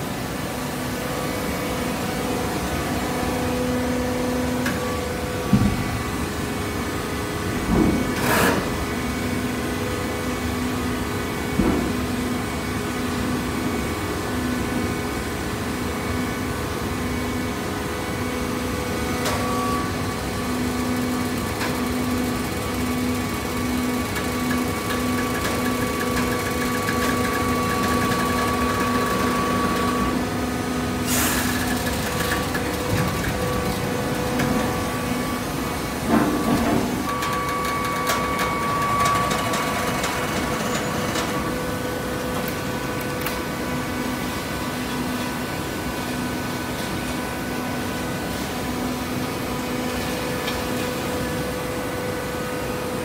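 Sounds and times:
machine knocking and clunking: 4.5s - 6.2s, 7.5s - 9.0s, 11.4s - 12.4s, 20.7s - 30.3s, 31.4s - 43.4s
hydraulic baler humming: 19.2s - 44.5s.

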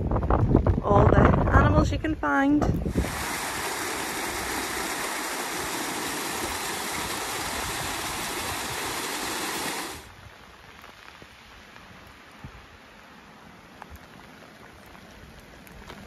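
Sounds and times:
water rushing: 2.8s - 10.1s
light rain hiss: 2.8s - 16.0s.

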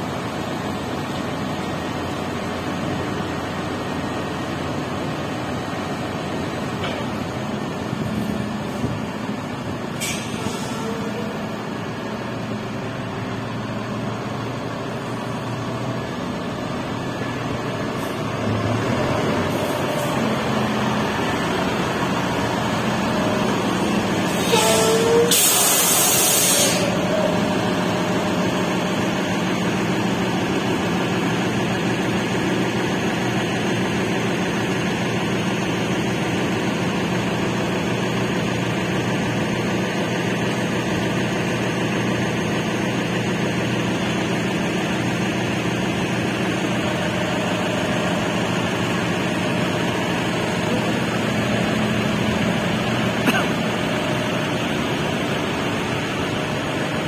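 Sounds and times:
diesel truck engine idling: 0.0s - 57.0s
air release hiss: 24.3s - 27.0s.

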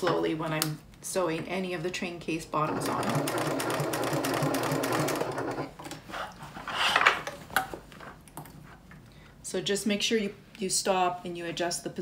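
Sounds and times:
sewing machine stitching: 2.7s - 5.7s.

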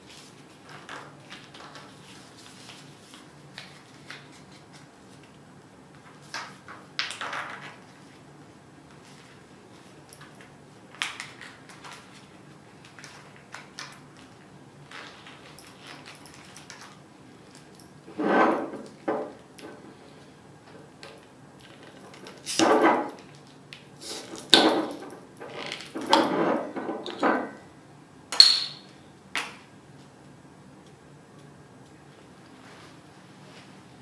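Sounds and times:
metallic clink of bottle cap: 28.4s - 28.8s.

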